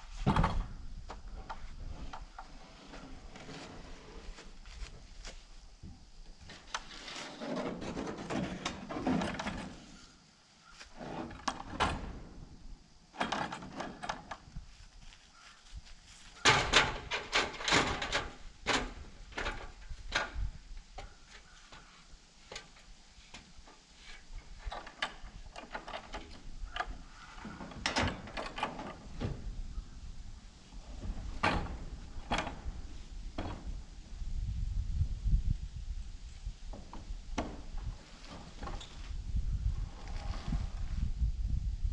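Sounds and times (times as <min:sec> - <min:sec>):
wooden knocks and clatter: 0:06.4 - 0:09.8, 0:16.4 - 0:21.1, 0:31.0 - 0:33.8, 0:36.7 - 0:39.0
metal ladder set down and climbed: 0:06.5 - 0:10.0, 0:16.3 - 0:21.1.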